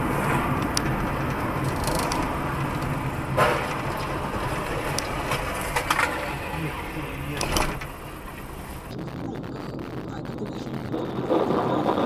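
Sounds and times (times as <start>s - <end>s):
car interior road noise: 0.0s - 12.0s
car collision crunch: 2.2s - 8.5s.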